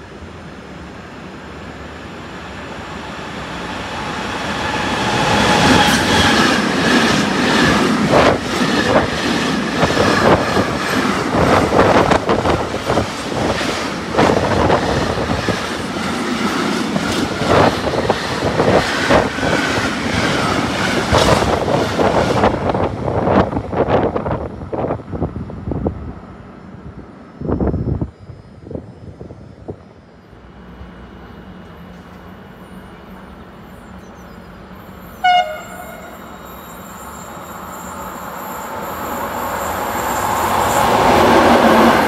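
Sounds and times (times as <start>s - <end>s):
freight train passing: 0.0s - 42.0s.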